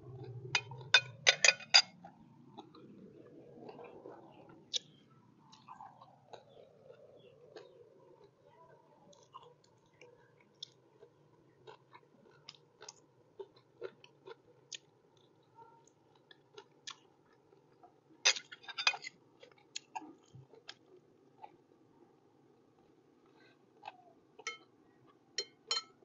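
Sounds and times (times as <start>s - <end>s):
person chewing with mouth clicks: 1.9s - 8.4s, 9.1s - 18.5s, 19.4s - 21.6s.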